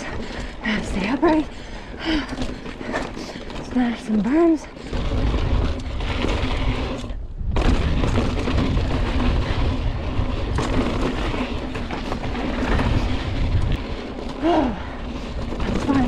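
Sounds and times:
mountain bike rattling over trail: 0:00.0 - 0:16.0
wind buffeting microphone: 0:04.7 - 0:16.0.

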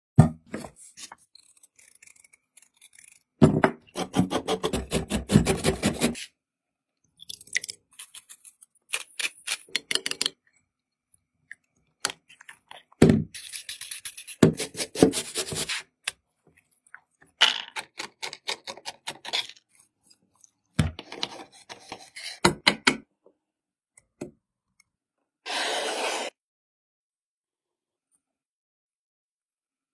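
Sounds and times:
peeler scraping apple skin: 0:00.8 - 0:06.3.

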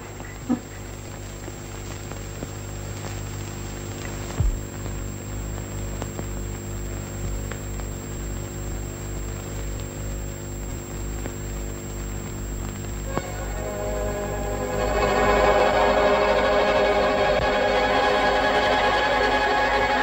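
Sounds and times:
film soundtrack hum and hiss: 0:00.0 - 0:20.0
music: 0:04.0 - 0:06.6, 0:13.0 - 0:20.0
low thump: 0:04.4 - 0:04.7.

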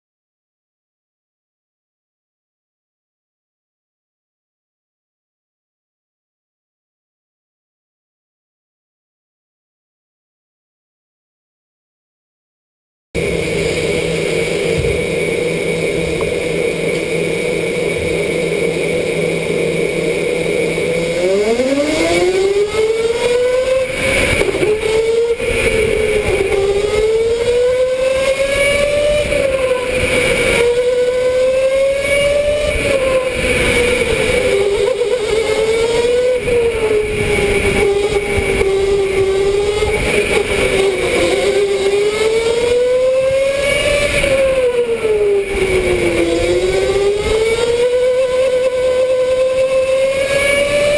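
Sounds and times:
electric go-kart motor whine: 0:13.2 - 0:50.9.

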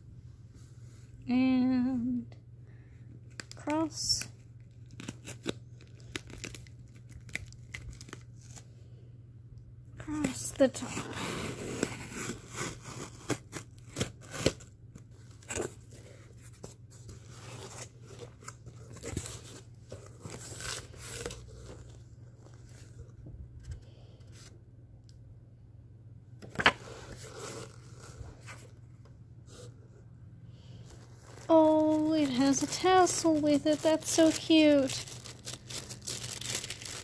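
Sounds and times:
tissue paper crinkling: 0:04.7 - 0:08.6, 0:15.2 - 0:23.1, 0:30.6 - 0:37.0.

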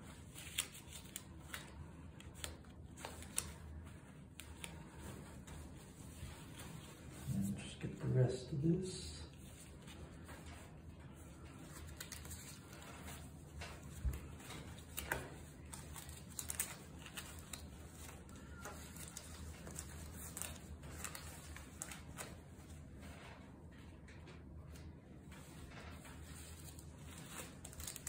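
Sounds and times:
fabric and gloves rustling: 0:00.0 - 0:28.0.

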